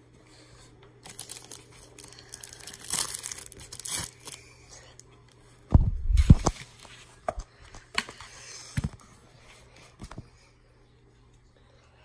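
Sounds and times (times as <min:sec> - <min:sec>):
plastic crinkling: 0:01.0 - 0:04.4.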